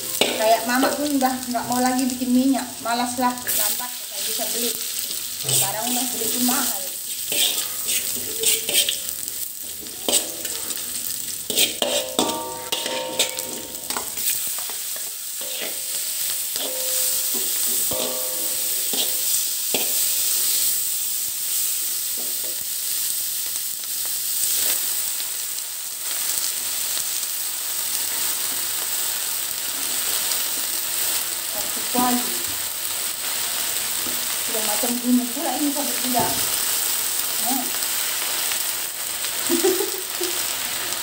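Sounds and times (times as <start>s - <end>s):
metal spatula scraping wok: 0.0s - 2.0s, 3.1s - 20.8s
food sizzling in hot oil: 0.0s - 41.0s.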